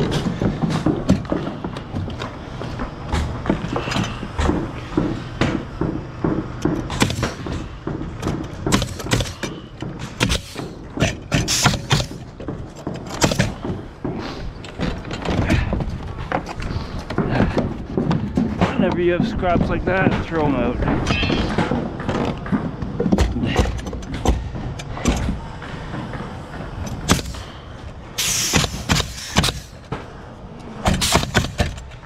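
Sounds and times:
nail gun firing: 0:06.6 - 0:07.6, 0:08.2 - 0:12.3, 0:12.9 - 0:13.7, 0:27.0 - 0:27.5, 0:28.2 - 0:29.8, 0:30.8 - 0:31.9
air hiss: 0:11.4 - 0:12.1, 0:28.2 - 0:29.8.

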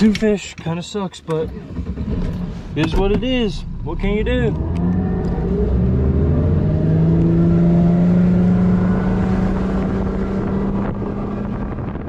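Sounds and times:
outboard motor running at speed: 0:06.8 - 0:12.0.

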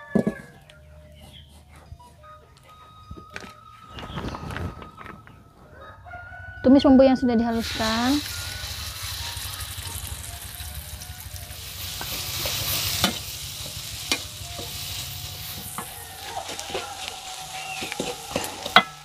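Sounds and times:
spice paste sizzling in oil: 0:07.6 - 0:19.0.

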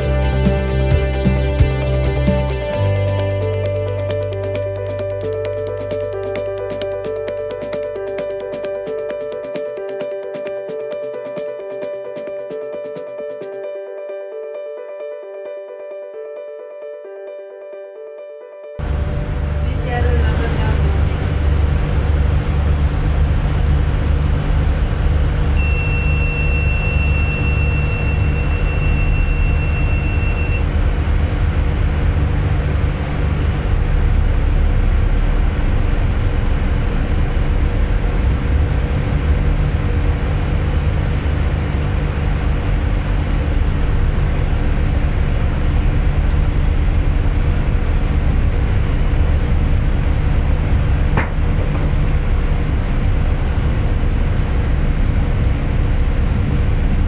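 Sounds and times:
boat engines droning: 0:18.8 - 0:57.0
thin high tone: 0:25.6 - 0:30.7.

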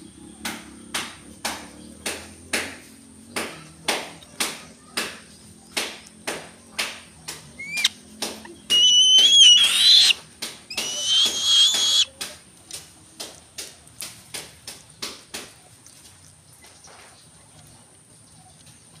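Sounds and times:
beak pecking on wood: 0:05.8 - 0:13.7
bird shrill whistled screeches: 0:07.6 - 0:07.9, 0:08.7 - 0:12.1.

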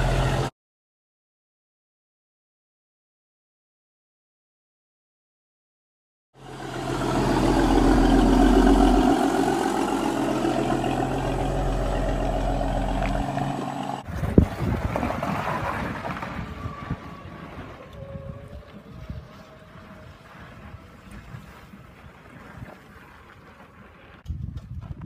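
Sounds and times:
miniature truck engine running: 0:00.0 - 0:00.5, 0:06.4 - 0:18.8
quiet small engine: 0:06.4 - 0:24.8
wind noise: 0:14.0 - 0:25.0.

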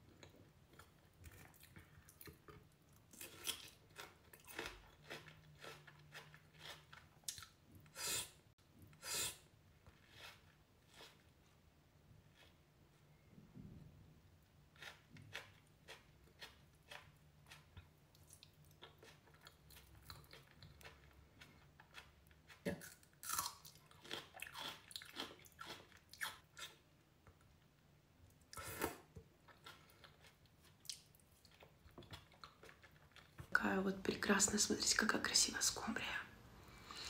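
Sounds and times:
person chewing: 0:00.1 - 0:11.6, 0:12.2 - 0:12.7, 0:14.5 - 0:26.8, 0:28.4 - 0:33.5
biting and crunching: 0:00.8 - 0:07.6, 0:14.7 - 0:26.8.

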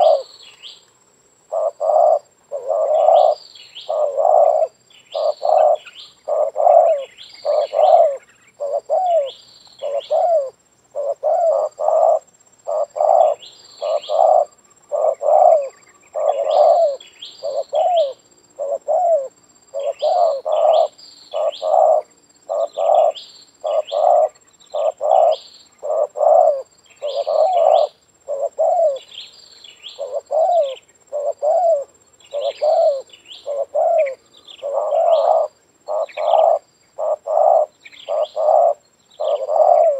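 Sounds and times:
dove cooing: 0:00.0 - 0:00.4, 0:01.5 - 0:29.2, 0:29.8 - 0:39.9.

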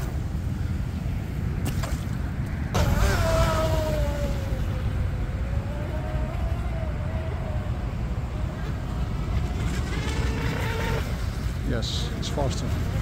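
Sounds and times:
rush of spray and prop noise: 0:00.0 - 0:13.0
wind rumbling on microphone: 0:00.0 - 0:13.0
electric motor whine: 0:02.8 - 0:11.5.

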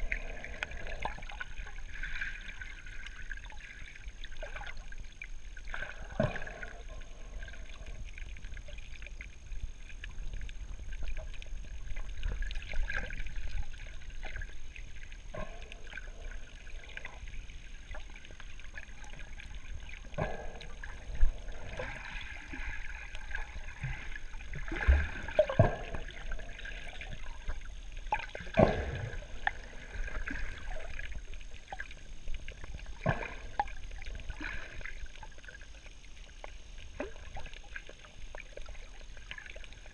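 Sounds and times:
exhaled breath bubbling: 0:00.0 - 0:02.8, 0:05.8 - 0:08.4, 0:15.3 - 0:17.4, 0:18.9 - 0:27.5
underwater water noise: 0:00.0 - 0:39.9.

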